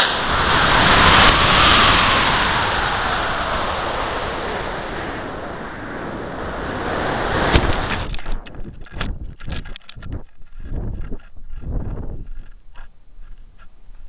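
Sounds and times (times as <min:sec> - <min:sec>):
sharp crack: 0:00.0 - 0:05.8, 0:07.2 - 0:10.2
air rushing over microphone: 0:00.0 - 0:09.4.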